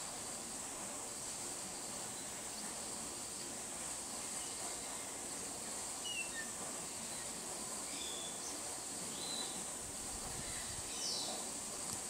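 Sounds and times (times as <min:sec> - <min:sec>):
bird chirps: 0:06.0 - 0:06.6.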